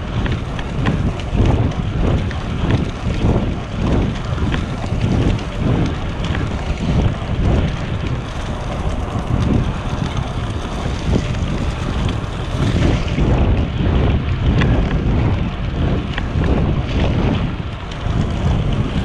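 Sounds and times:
wind buffeting microphone: 0.0s - 19.0s
light ticks: 0.1s - 3.3s.

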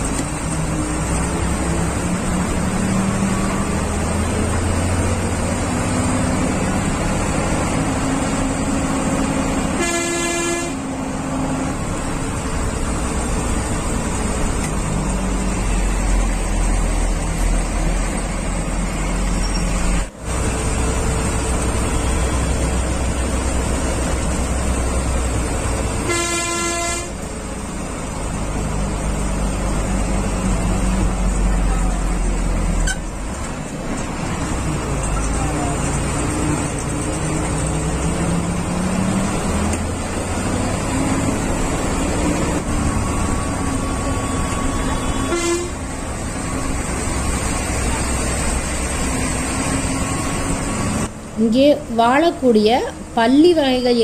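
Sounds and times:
bus engine running: 0.0s - 54.0s
road noise: 0.0s - 54.0s
bus horn honking: 9.2s - 11.0s, 25.8s - 27.3s, 43.8s - 46.1s.

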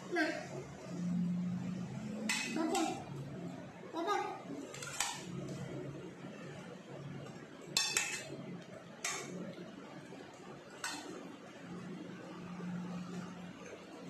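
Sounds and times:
metal spoon clinking on steel bowl: 7.7s - 8.4s, 10.8s - 11.2s.

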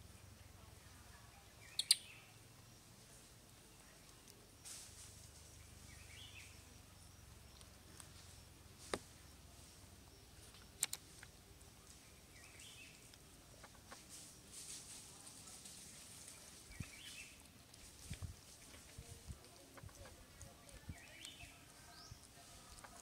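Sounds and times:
faint high chirps: 0.0s - 17.6s
outdoor background hiss: 0.0s - 23.0s
sharp clicks: 10.5s - 11.3s.

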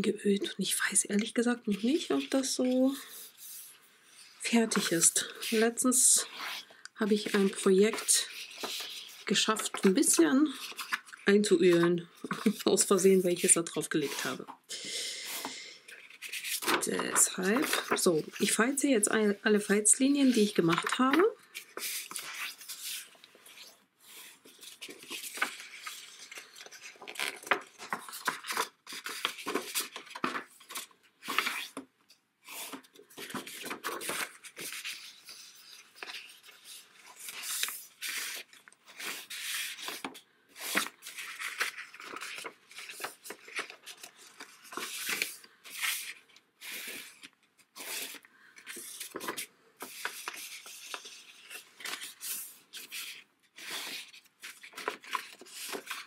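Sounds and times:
paper rustling: 1.2s - 14.6s, 15.4s - 56.0s
bone folder scraping paper: 3.0s - 14.5s.

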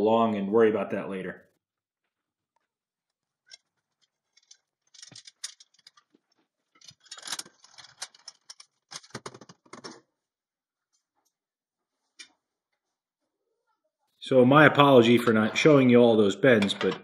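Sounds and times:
tube bender clicking and clanking: 3.4s - 10.0s.

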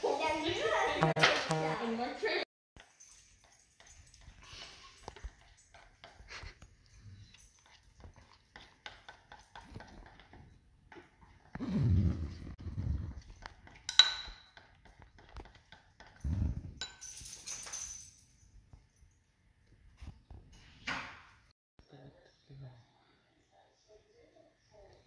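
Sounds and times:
spoon stirring in ceramic bowl: 2.8s - 11.6s, 12.3s - 17.2s.

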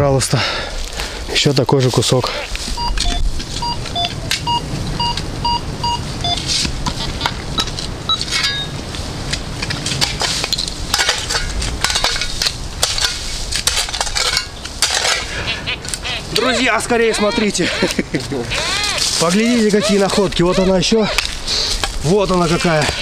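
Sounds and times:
metal detector beeping: 2.8s - 6.5s, 7.6s - 8.8s
scrap iron clinking and scraping: 6.4s - 8.8s, 9.6s - 15.4s.

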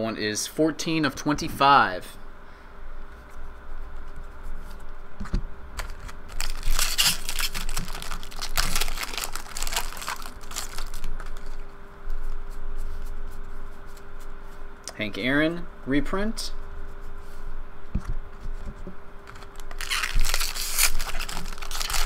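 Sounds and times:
foil wrapper crinkling and tearing: 5.8s - 11.6s, 19.3s - 22.0s.

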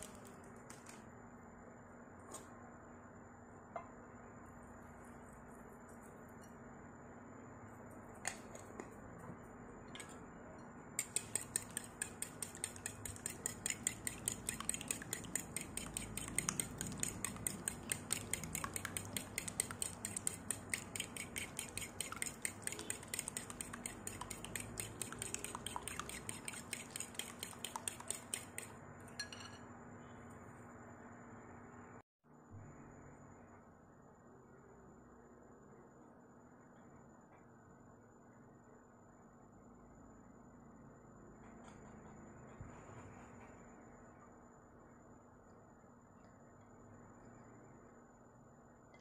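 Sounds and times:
spoon stirring in ceramic bowl: 11.0s - 29.6s
spoon tapping bowl: 11.0s - 29.6s.

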